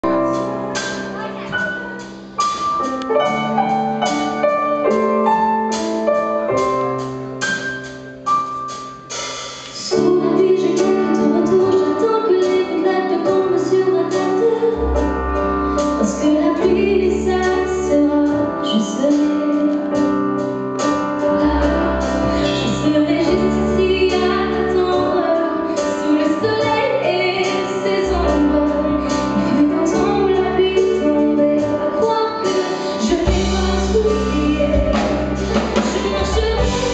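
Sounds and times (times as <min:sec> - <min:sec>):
keyboard chords: 0:00.0 - 0:36.9
woman singing: 0:09.8 - 0:15.1, 0:15.9 - 0:20.1, 0:21.2 - 0:36.9
low bass notes: 0:33.1 - 0:36.9.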